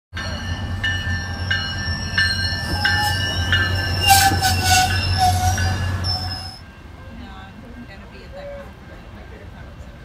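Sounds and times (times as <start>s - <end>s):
train bell ringing: 0.2s - 10.0s
train rumbling: 0.2s - 10.0s
wheel squeal: 2.7s - 6.6s.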